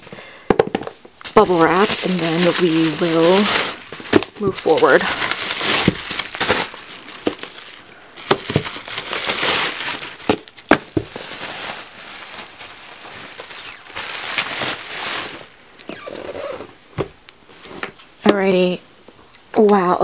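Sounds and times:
album boxes knocking: 0.5 - 1.0, 8.2 - 8.8, 10.2 - 11.2
bubble wrap crinkling: 0.8 - 16.7.

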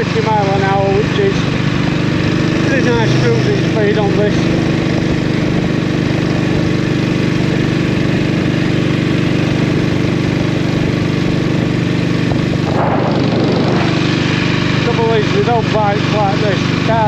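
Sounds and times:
motorcycle engine running: 0.0 - 17.0
wind noise: 10.9 - 15.0.

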